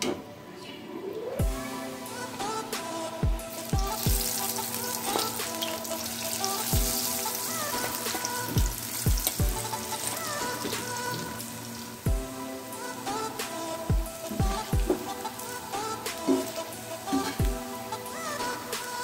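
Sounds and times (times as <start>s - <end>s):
electronic music with deep bass: 1.4s - 18.8s
food sizzling in hot oil: 3.4s - 17.4s.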